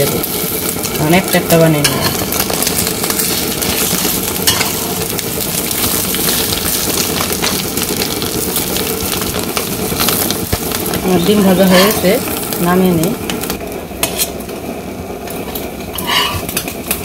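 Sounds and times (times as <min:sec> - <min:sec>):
eggs sizzling in oil: 0:00.0 - 0:17.0
metal spatula scraping and tapping: 0:01.8 - 0:02.3, 0:04.4 - 0:04.9, 0:11.6 - 0:12.1, 0:14.0 - 0:14.4, 0:15.5 - 0:16.7.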